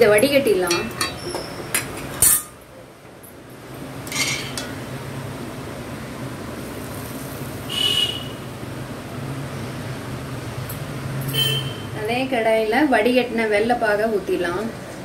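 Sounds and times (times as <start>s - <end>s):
steel cookware clinking: 0.1s - 2.6s, 4.1s - 4.8s.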